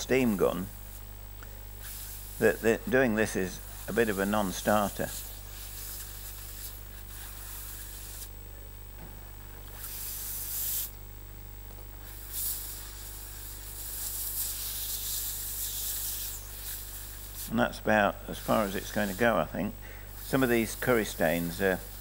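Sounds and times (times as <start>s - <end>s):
steam gun hissing: 1.8s - 8.3s, 9.7s - 11.0s, 12.0s - 17.6s, 18.3s - 22.0s.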